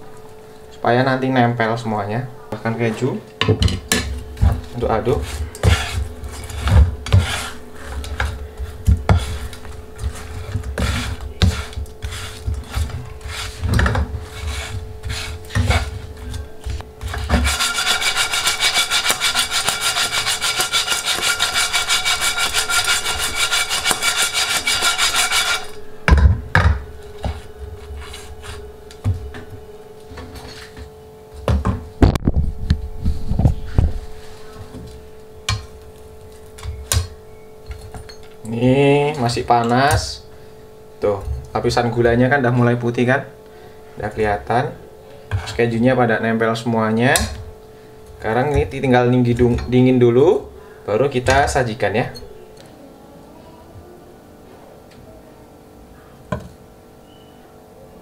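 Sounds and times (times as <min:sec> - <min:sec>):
steady rasping noise: 0:04.3 - 0:26.1, 0:26.9 - 0:29.6
spatula scraping wok: 0:04.9 - 0:25.8, 0:27.2 - 0:28.6.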